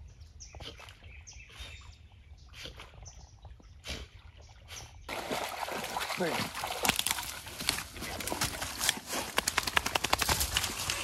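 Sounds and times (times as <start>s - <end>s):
small birds chirping: 0.0s - 5.1s
dog splashing through reeds: 5.1s - 11.0s.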